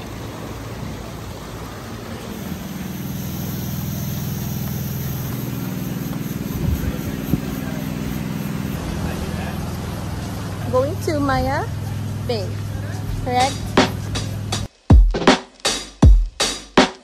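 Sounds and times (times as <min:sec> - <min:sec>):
engine running steadily: 0:00.0 - 0:14.7.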